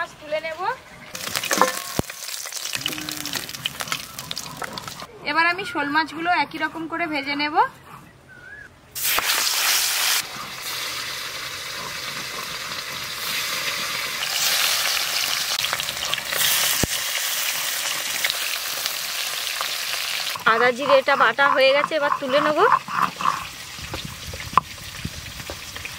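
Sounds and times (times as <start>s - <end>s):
fish sizzling in hot oil: 1.1s - 5.0s, 9.0s - 20.8s, 22.7s - 25.9s.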